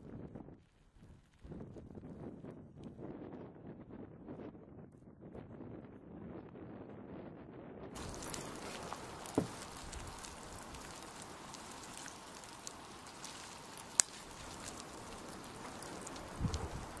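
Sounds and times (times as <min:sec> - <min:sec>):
lava crust crackling and ticking: 0:00.0 - 0:07.2, 0:08.0 - 0:17.0
dull thump: 0:08.0 - 0:10.1
sharp crack: 0:08.0 - 0:17.0
steady hiss: 0:08.0 - 0:17.0.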